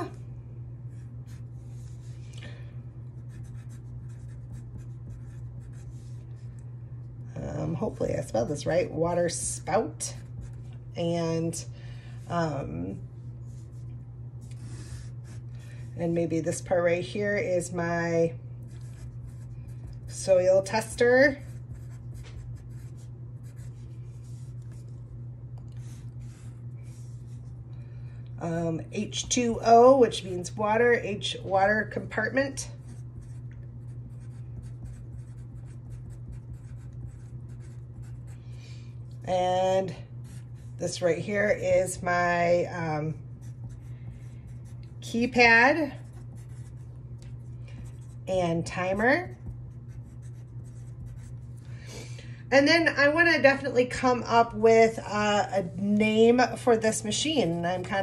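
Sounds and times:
steady low hum: 0:00.0 - 0:58.0
pencil scratching on paper: 0:03.2 - 0:06.4, 0:14.5 - 0:15.5, 0:18.7 - 0:24.8, 0:25.8 - 0:27.4, 0:32.7 - 0:38.3, 0:40.2 - 0:40.8, 0:43.4 - 0:46.9, 0:49.0 - 0:51.5
pencil writing on paper: 0:32.8 - 0:38.3, 0:46.0 - 0:46.8, 0:49.9 - 0:51.4.

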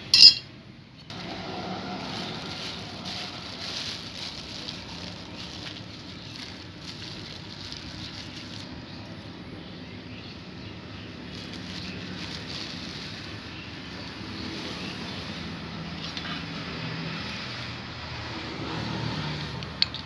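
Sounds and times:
plastic bag crinkling: 0:01.1 - 0:09.2, 0:11.2 - 0:14.2
low engine hum: 0:01.1 - 0:20.0.

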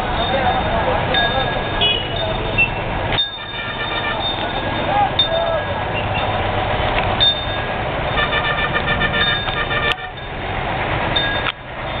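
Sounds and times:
street traffic: 0:00.0 - 0:12.0
vehicle horns honking: 0:01.4 - 0:05.2, 0:07.2 - 0:10.4
horn in rapid pulses: 0:03.3 - 0:04.5, 0:08.1 - 0:10.2.

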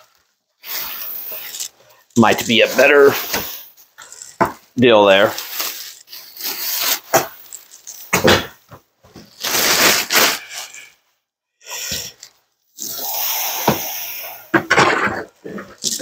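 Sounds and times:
plastic packaging rustling: 0:00.0 - 0:10.9
cardboard scraping and flexing: 0:09.2 - 0:10.5.

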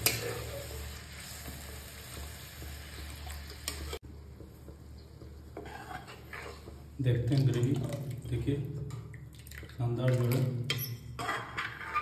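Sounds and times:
soft sizzle from pan: 0:00.0 - 0:07.2
metal ladle stirring gravy: 0:05.2 - 0:07.0.

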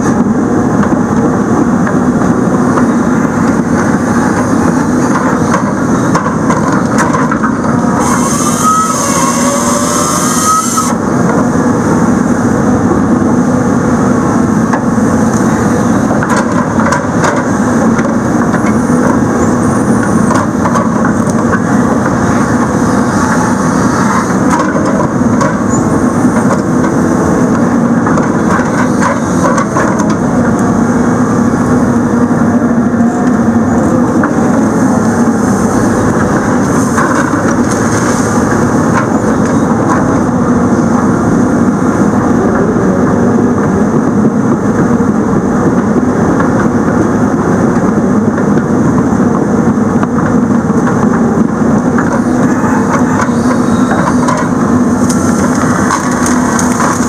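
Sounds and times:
diesel engine running: 0:00.0 - 0:57.0.

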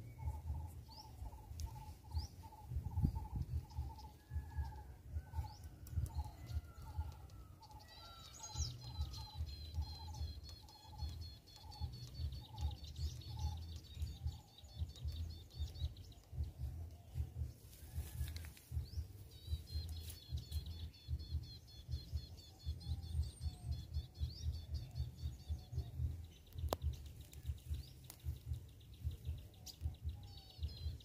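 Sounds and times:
bird chattering trill: 0:06.1 - 0:16.8.

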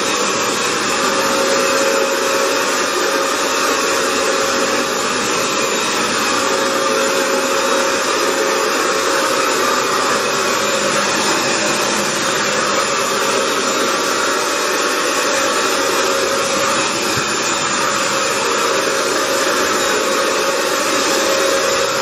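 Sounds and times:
floor cleaner motor whining: 0:00.0 - 0:22.0.

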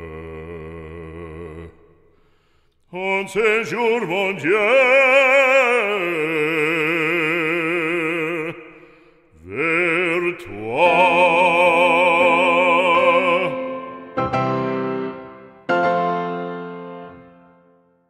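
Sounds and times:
operatic singing with vibrato: 0:02.9 - 0:15.8.

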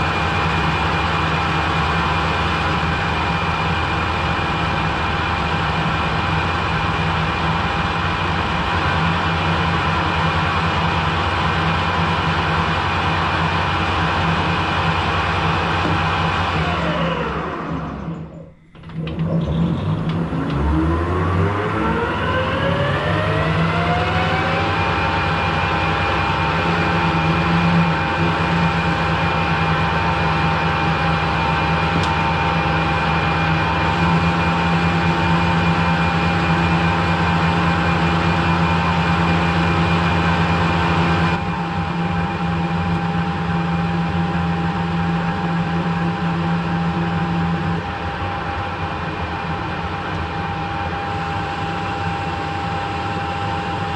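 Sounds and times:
metal lathe humming and whining: 0:00.0 - 0:53.9.

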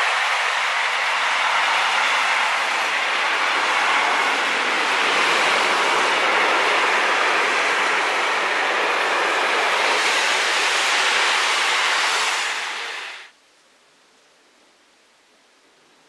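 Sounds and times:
train wheels rushing on rails: 0:00.0 - 0:13.3.

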